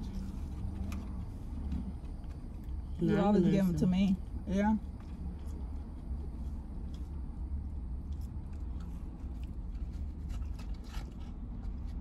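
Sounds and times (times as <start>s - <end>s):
faint clicks and rustles: 0.0s - 3.0s
people chewing food: 0.0s - 3.2s, 4.1s - 12.0s
steady low rumble: 0.0s - 12.0s.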